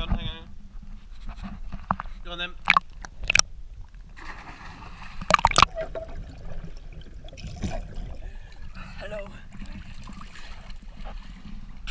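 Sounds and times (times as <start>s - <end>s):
muffled water gurgling and sloshing: 0.0s - 11.9s
loud splash: 4.2s - 5.8s.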